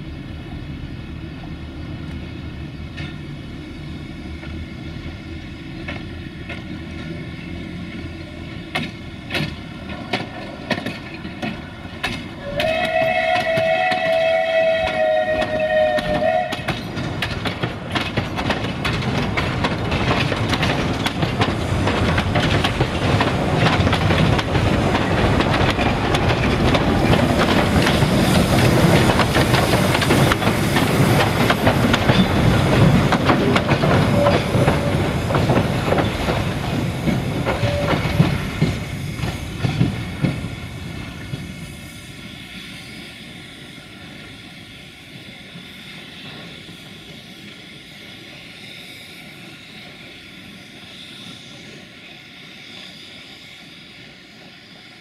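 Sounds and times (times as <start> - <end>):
carriages clattering over rail joints: 5.8 - 40.5
steam whistle: 12.4 - 16.8, 37.5 - 38.4.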